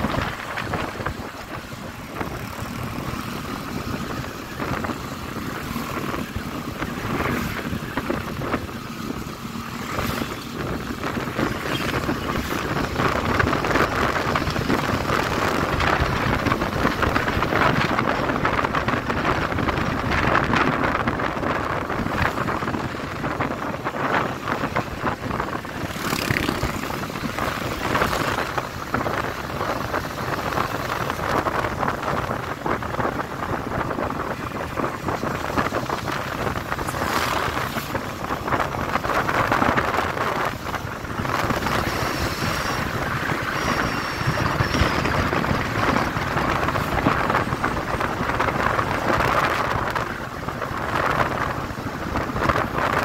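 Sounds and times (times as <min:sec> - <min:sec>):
motorcycle engine: 0:00.0 - 0:52.9
wind rushing over microphone: 0:00.0 - 0:53.0.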